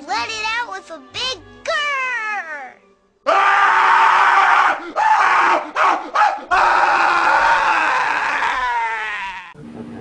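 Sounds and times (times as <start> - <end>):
cartoon character roaring yell: 3.3 - 5.6, 6.5 - 9.6.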